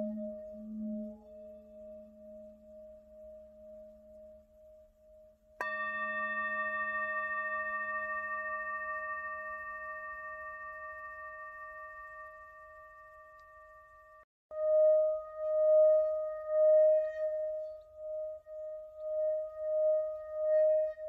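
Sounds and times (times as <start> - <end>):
singing bowl pulsing tone: 0.0 - 21.0
singing bowl struck with mallet: 5.6 - 14.2.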